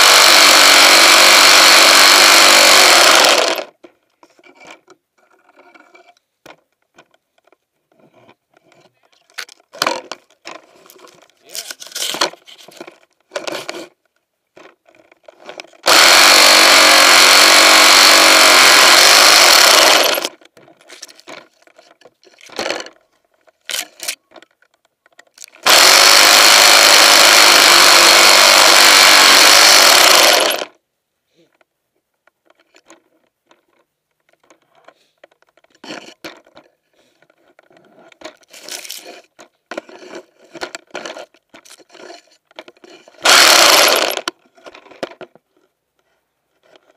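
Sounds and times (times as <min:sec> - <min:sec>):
electric chainsaw cutting branches: 0:00.0 - 0:03.8, 0:15.6 - 0:20.4, 0:25.4 - 0:30.8, 0:43.2 - 0:44.3.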